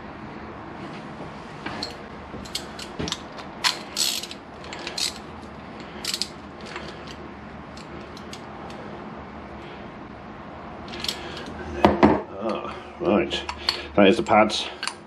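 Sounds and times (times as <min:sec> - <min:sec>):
ratchet wrench clicking: 0:03.6 - 0:07.2.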